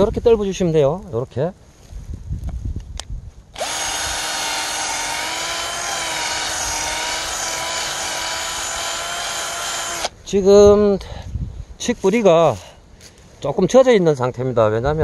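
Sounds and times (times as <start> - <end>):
cordless drill boring into root: 3.6 - 10.1.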